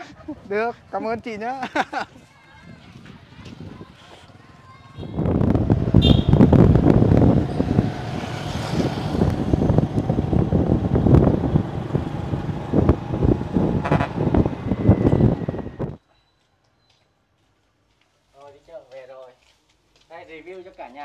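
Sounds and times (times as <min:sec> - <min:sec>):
wind rumble on microphone: 0:02.5 - 0:16.0
road traffic noise: 0:02.9 - 0:16.0
vehicle horn honking: 0:05.9 - 0:06.7, 0:13.7 - 0:15.8.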